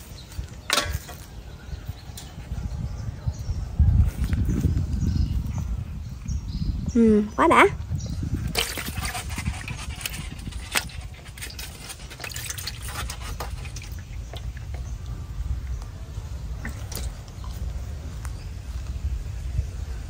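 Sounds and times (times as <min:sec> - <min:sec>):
water dripping and splashing: 0:08.4 - 0:18.3.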